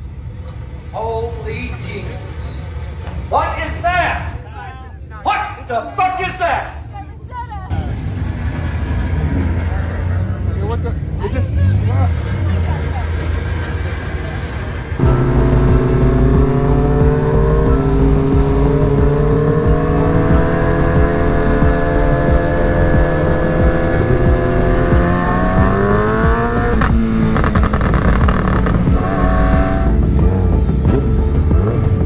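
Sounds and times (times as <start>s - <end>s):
motorcycle engine revving: 7.7s - 32.0s.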